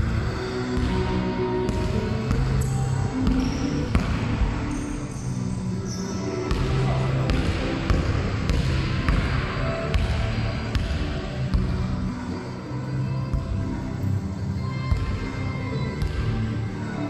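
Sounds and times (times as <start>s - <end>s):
basketball bouncing on wooden floor: 6.5s - 10.2s.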